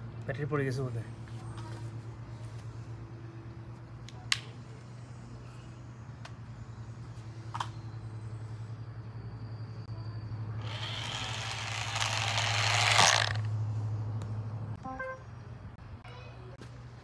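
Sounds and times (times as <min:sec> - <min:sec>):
toy car motor hum: 0:10.6 - 0:13.5.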